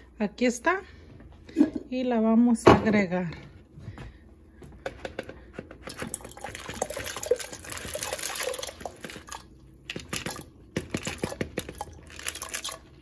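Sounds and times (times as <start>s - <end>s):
water pouring into a pot: 5.9s - 9.6s, 11.2s - 13.0s.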